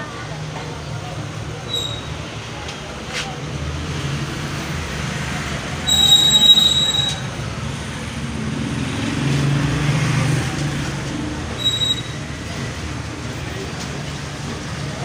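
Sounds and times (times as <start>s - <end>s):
high piercing squeal: 1.7s - 2.2s, 5.8s - 7.4s, 11.6s - 12.2s.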